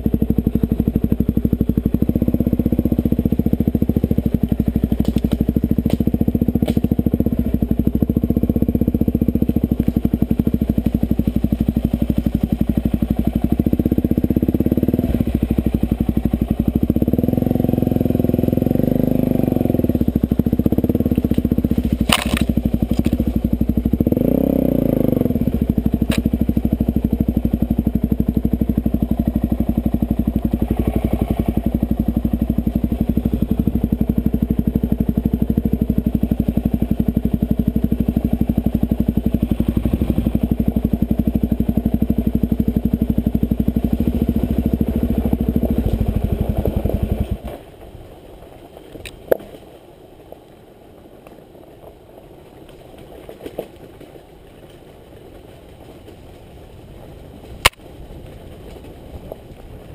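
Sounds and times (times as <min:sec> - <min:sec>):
motorcycle engine running: 0:00.0 - 0:59.9
rolling noise: 0:25.0 - 0:59.9.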